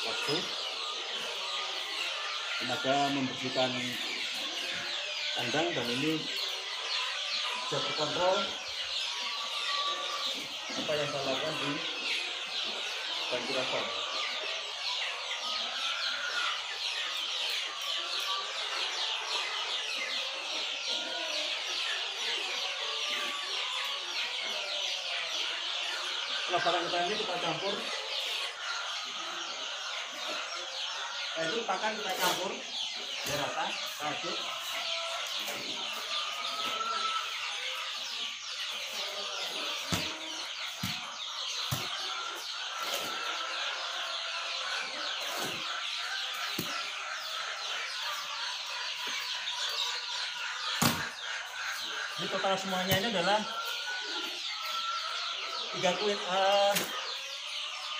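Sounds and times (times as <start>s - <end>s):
chickens clucking and cackling: 0.0s - 57.9s.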